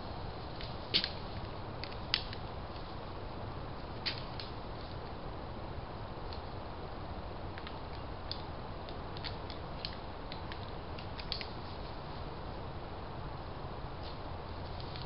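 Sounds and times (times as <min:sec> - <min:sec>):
camera hiss: 0:00.0 - 0:05.4, 0:06.1 - 0:12.5, 0:13.3 - 0:15.0.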